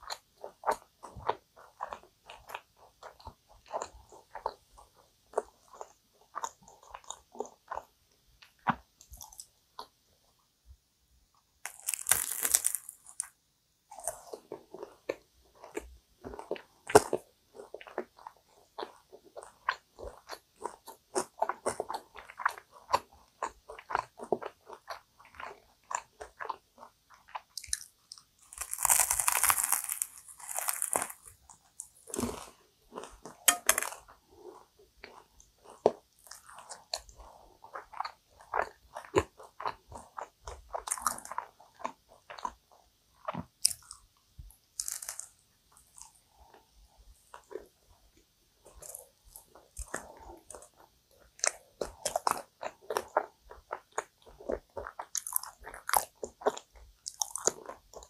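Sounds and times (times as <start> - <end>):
chewing pastry: 0.0 - 10.5, 11.3 - 58.0
crunching pastry crust: 11.6 - 42.6, 44.8 - 47.7, 48.6 - 58.0.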